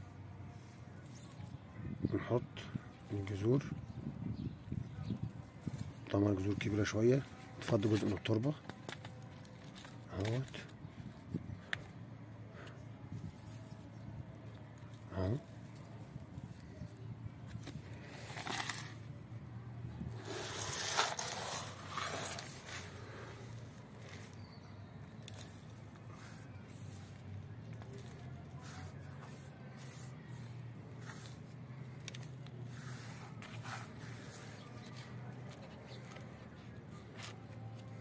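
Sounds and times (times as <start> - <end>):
soil pouring into plastic pot: 20.2 - 22.8.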